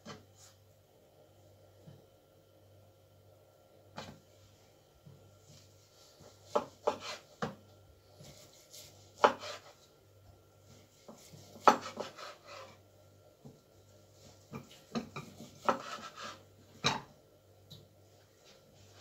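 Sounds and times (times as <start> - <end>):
knife chopping on cutting board: 6.5 - 7.6, 8.2 - 9.7, 11.1 - 12.7, 14.5 - 17.1.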